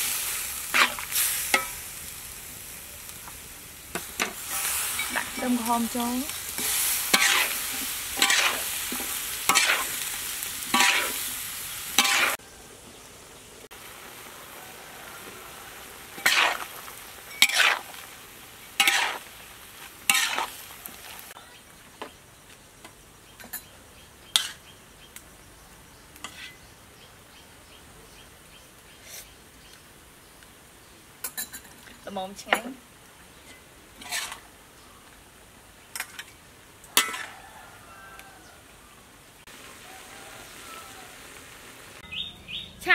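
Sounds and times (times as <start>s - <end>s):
onion sizzling in a wok: 0.0s - 42.9s
metal spatula scraping a wok: 0.6s - 1.8s, 4.0s - 12.4s, 16.1s - 18.0s, 18.8s - 19.3s, 20.0s - 21.3s, 24.3s - 24.6s, 26.2s - 26.6s, 33.5s - 34.5s, 37.0s - 37.3s.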